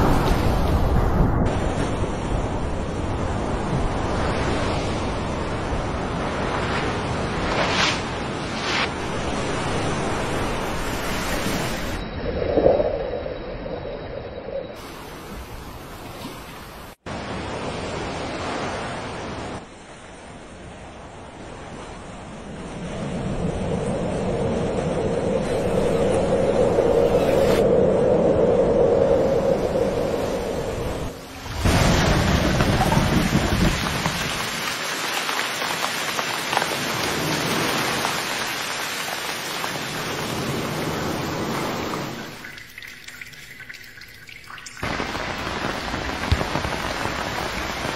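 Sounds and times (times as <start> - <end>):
ocean waves and surf: 0.0 - 47.9
steady rain falling: 31.0 - 47.9.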